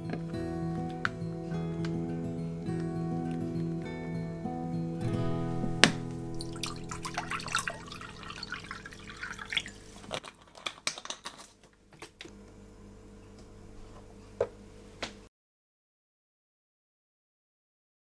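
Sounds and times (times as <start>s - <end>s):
water pouring into a glass: 5.1s - 10.2s.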